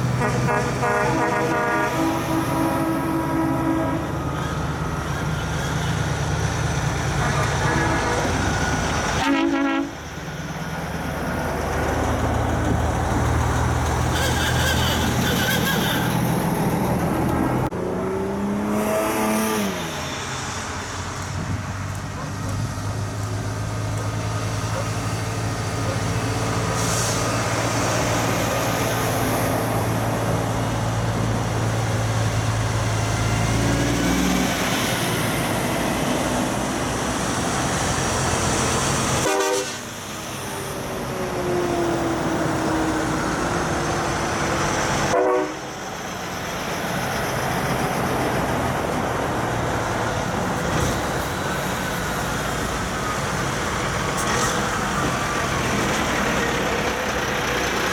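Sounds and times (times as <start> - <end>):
diesel truck engines droning: 0.0 - 57.9
truck air horn: 0.1 - 4.3, 7.2 - 8.6, 9.2 - 10.1, 14.1 - 16.2, 39.1 - 40.1, 45.1 - 45.8.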